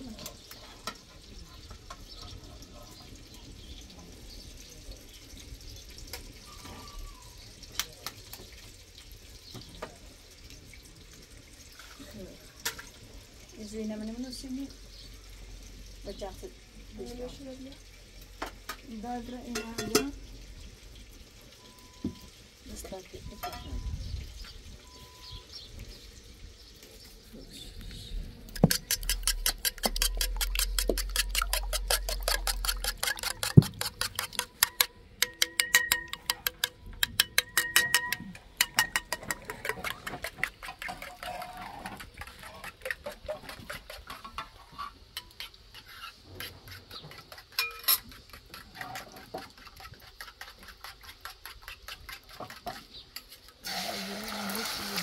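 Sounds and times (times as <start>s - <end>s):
metal spoon clinking in bowl: 19.6s - 20.2s, 23.4s - 23.8s, 28.6s - 41.4s, 47.5s - 49.0s.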